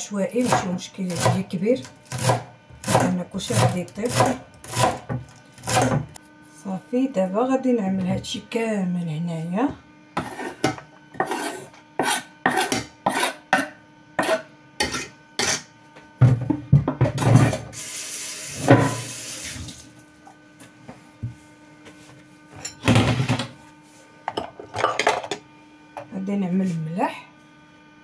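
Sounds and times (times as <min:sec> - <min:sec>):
knife scraping cutting board: 0:10.2 - 0:15.7.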